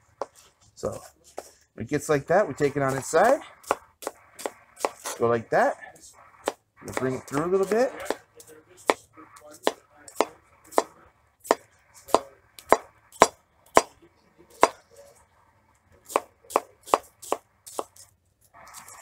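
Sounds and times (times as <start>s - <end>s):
cleaver chopping on plastic board: 2.9s - 5.2s, 9.6s - 13.9s, 14.6s - 14.8s, 16.1s - 18.0s.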